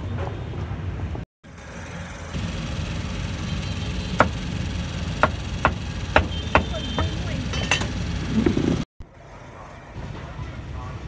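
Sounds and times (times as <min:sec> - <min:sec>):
busy market street noise: 0:00.0 - 0:11.0.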